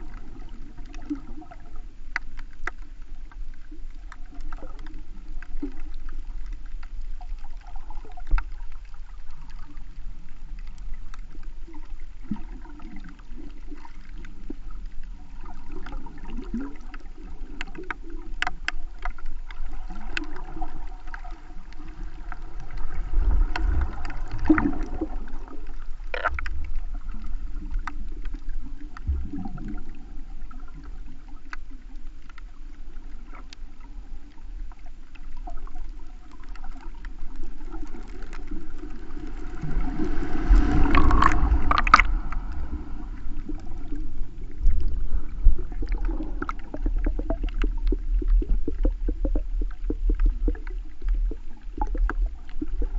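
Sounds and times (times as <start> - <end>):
faint clicks: 0.0 - 52.9
underwater sloshing rumble: 0.0 - 52.9.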